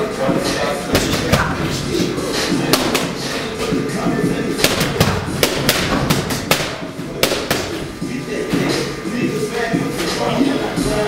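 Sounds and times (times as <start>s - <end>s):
boxing gloves smacking mitts: 2.7s - 3.2s, 4.6s - 7.8s.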